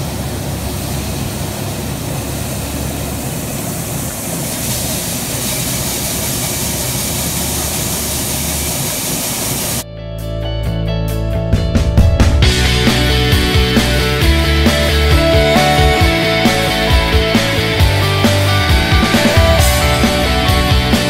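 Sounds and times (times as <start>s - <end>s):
coffee roaster rushing: 0.0s - 9.8s
rock guitar music: 9.9s - 21.0s.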